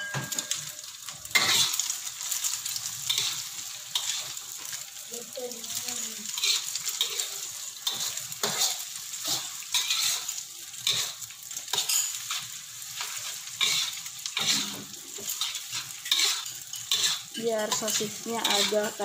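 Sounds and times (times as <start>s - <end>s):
food sizzling in hot oil: 0.0s - 19.0s
metal spatula scraping a wok: 1.3s - 1.9s, 3.0s - 4.4s, 6.3s - 19.0s.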